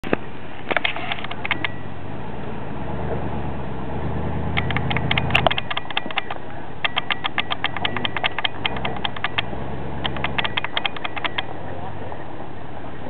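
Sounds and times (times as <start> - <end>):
quick sharp clicks: 4.6 - 11.5.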